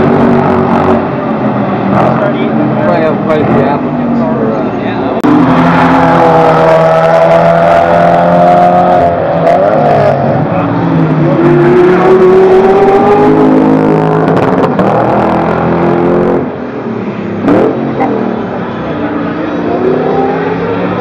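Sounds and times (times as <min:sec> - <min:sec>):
car engine revving past at speed: 0:17.4 - 0:21.0.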